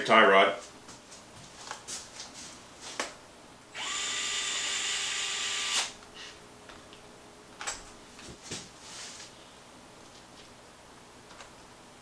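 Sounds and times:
cordless screwdriver spinning: 0:03.8 - 0:05.9.

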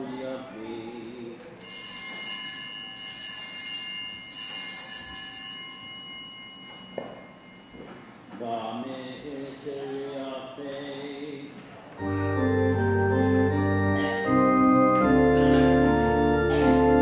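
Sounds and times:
small bells ringing: 0:01.6 - 0:08.3.

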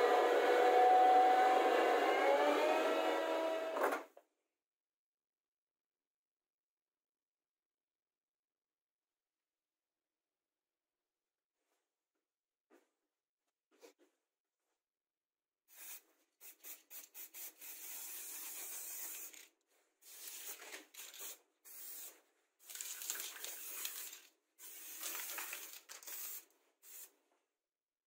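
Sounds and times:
spray paint can hissing: 0:15.7 - 0:27.1.

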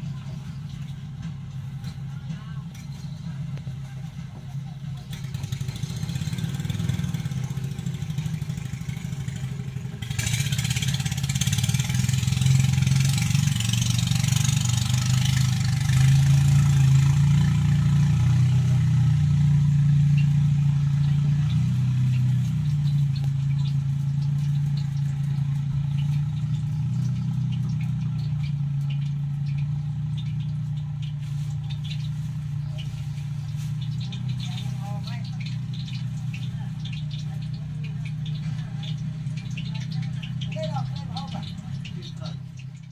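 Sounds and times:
engine droning: 0:00.0 - 0:42.9.

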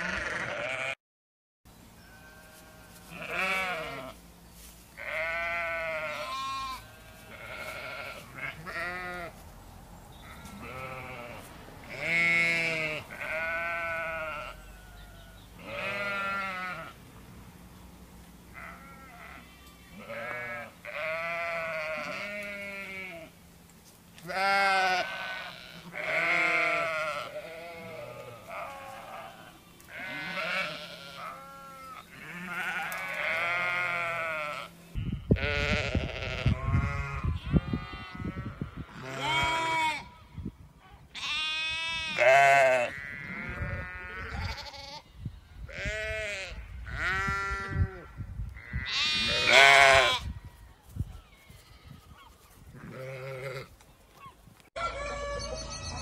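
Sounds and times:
sheep bleating: 0:00.0 - 0:01.0, 0:02.1 - 0:04.2, 0:05.0 - 0:09.4, 0:10.2 - 0:17.0, 0:18.5 - 0:23.3, 0:24.2 - 0:40.3, 0:41.1 - 0:45.1, 0:45.7 - 0:50.3, 0:52.8 - 0:53.7.

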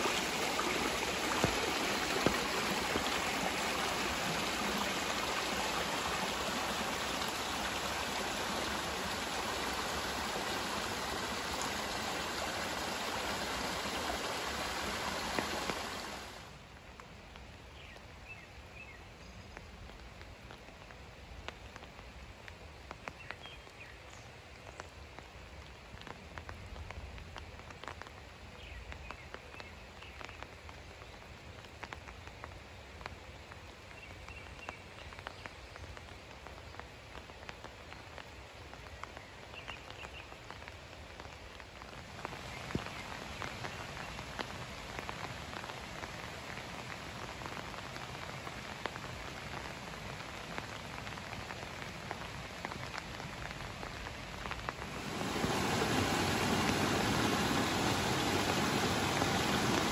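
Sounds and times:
water pattering: 0:00.0 - 0:16.0, 0:54.4 - 0:59.9.

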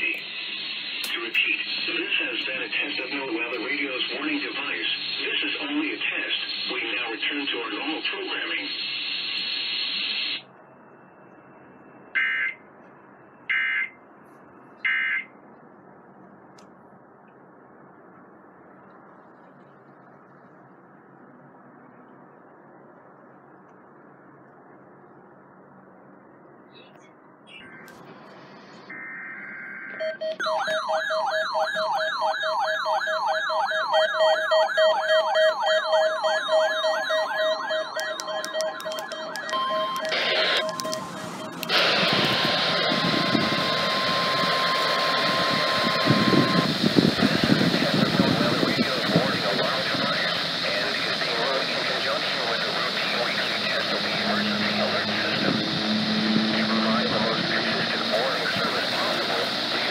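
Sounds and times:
pulsing beep: 0:28.9 - 0:46.8
digital data tone bursts: 0:28.9 - 0:59.9
rapid warbling siren: 0:28.9 - 0:59.9.

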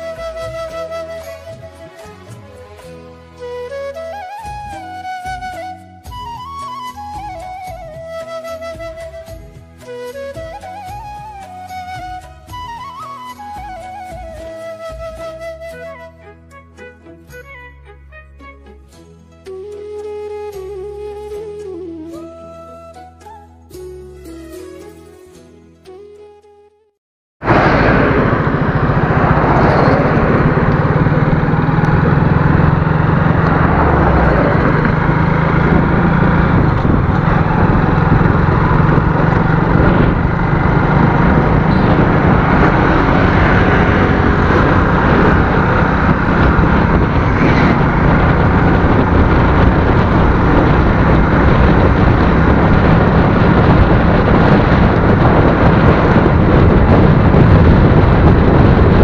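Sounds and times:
wind noise on microphone: 0:03.4 - 0:16.0, 0:27.4 - 0:59.0
motorcycle engine running: 0:27.4 - 0:59.0.

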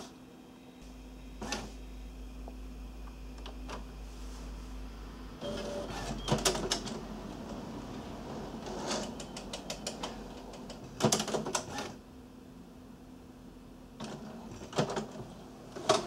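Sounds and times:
low steady hum: 0:00.0 - 0:11.1, 0:12.0 - 0:16.0
printer mechanism clicking: 0:08.9 - 0:11.9.

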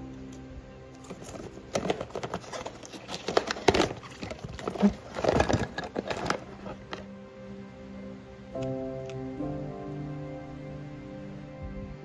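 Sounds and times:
cardboard flaps rustling and scraping: 0:01.0 - 0:07.0.

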